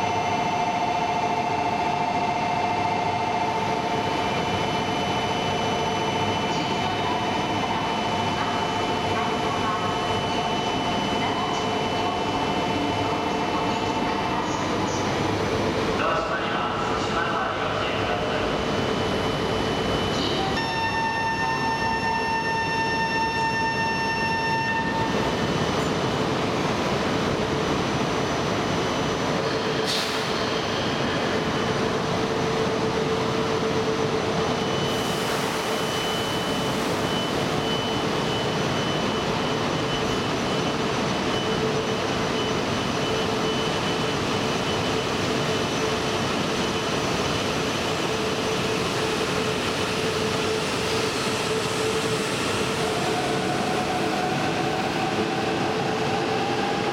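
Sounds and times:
rising train motor whine: 0.0s - 56.9s
station chime: 18.7s - 25.5s.

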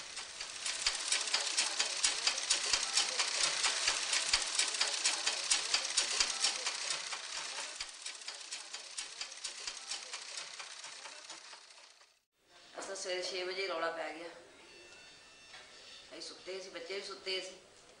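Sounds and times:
sewing machine clattering: 0.0s - 12.2s.

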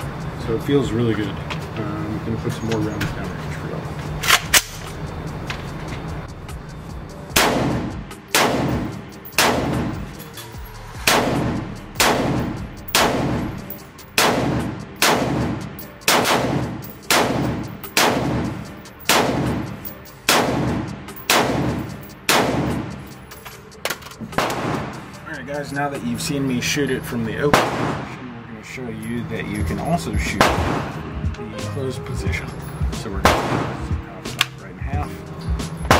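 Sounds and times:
rifle shots echoing indoors: 7.4s - 10.0s, 11.0s - 23.1s, 24.4s - 25.0s, 27.5s - 28.2s, 30.4s - 31.1s, 33.2s - 33.9s.

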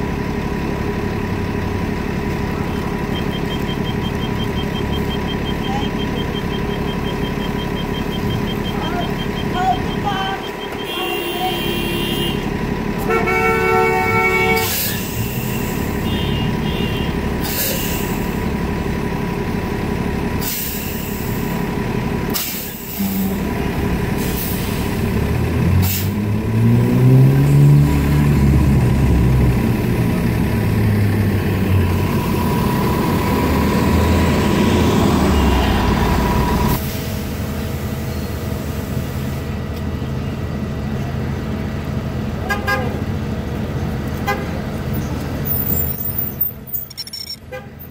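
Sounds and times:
bus engine revving: 0.0s - 46.8s
electronic beeping: 3.0s - 11.1s
air brake hisses: 14.6s - 16.0s, 17.4s - 18.4s, 20.4s - 21.5s.

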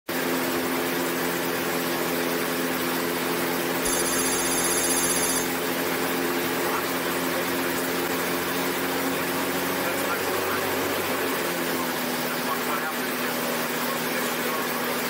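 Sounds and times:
gyroplane engine and rotor droning: 0.1s - 15.0s
rapid high electronic beeping: 3.8s - 5.5s.

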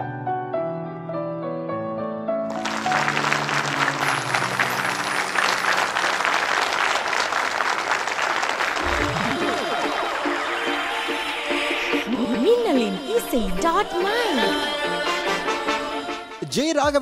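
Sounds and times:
piano notes: 0.0s - 6.2s
crowd clapping: 2.5s - 11.7s
deep rising sweep: 8.8s - 11.9s.

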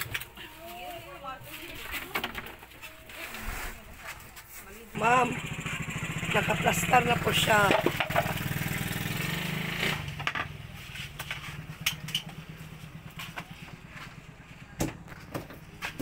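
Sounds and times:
small engine throbbing: 5.0s - 15.7s.

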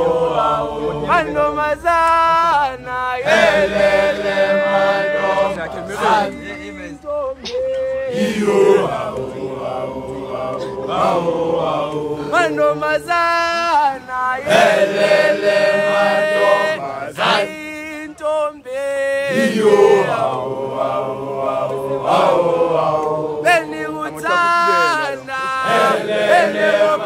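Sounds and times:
boys chanting a song: 0.0s - 17.8s.

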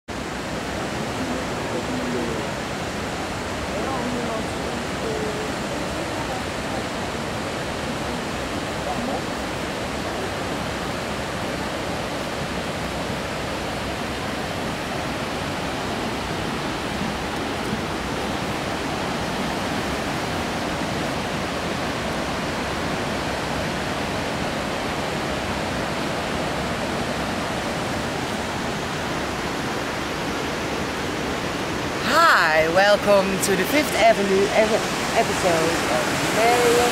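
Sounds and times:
river rushing: 0.1s - 36.9s.

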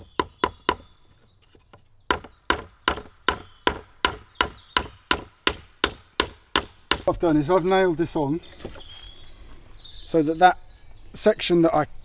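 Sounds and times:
hatchet hammering a nail: 0.0s - 0.9s, 2.1s - 7.1s.

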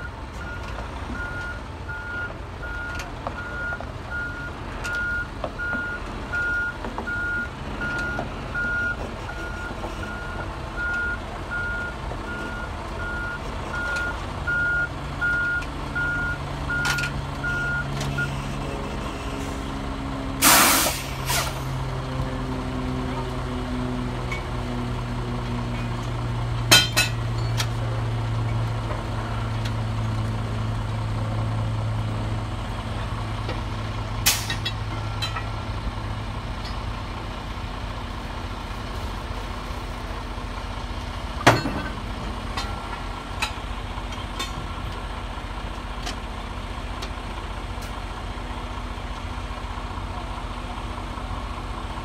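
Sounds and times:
heavy engine idling: 0.0s - 52.0s.

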